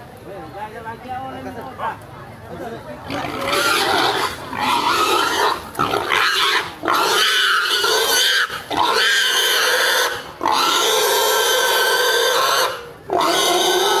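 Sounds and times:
pig squealing: 3.1 - 14.0.

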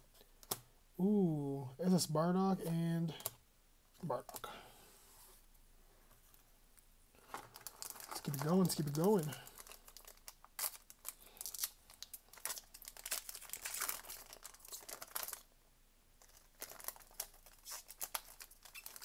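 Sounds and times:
foil wrapper crinkling and tearing: 7.2 - 15.5, 16.2 - 19.0.

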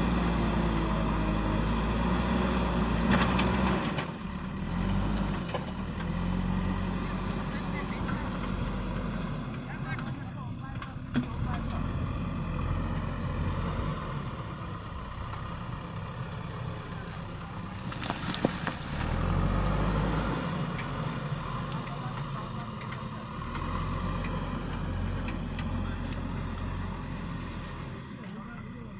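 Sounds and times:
backhoe diesel engine running: 0.0 - 28.9.

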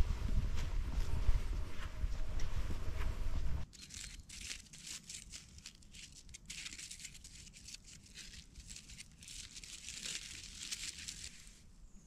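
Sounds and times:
footsteps crunching dry leaves: 3.7 - 11.6.

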